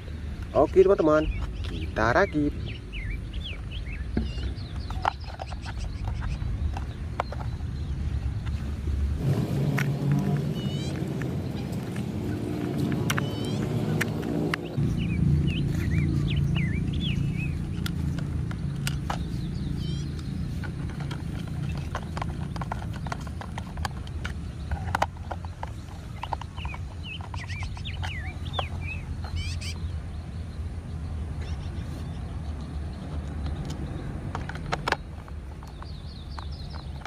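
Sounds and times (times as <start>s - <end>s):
bird chirping: 0.0s - 37.0s
steady low hum: 5.9s - 29.1s.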